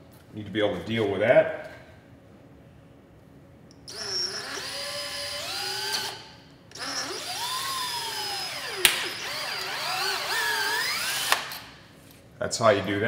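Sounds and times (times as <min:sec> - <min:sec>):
cordless drill motor running: 0:03.9 - 0:11.7.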